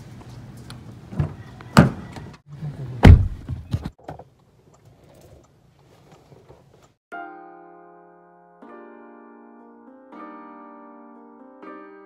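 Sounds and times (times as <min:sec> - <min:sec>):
car door shutting thunk: 0:03.0 - 0:03.9.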